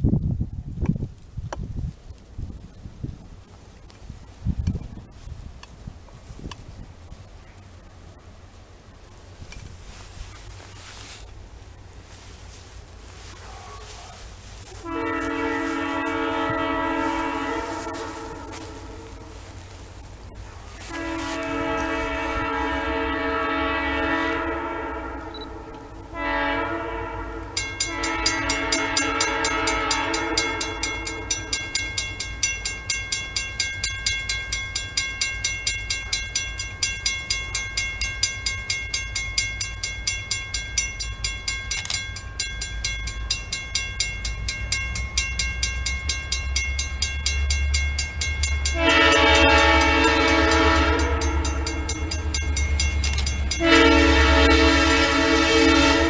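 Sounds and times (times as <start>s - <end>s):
low rumble of train: 0.0s - 56.0s
locomotive horn blasts: 13.2s - 31.9s, 48.7s - 56.0s
crossing bell ringing: 14.1s - 56.0s.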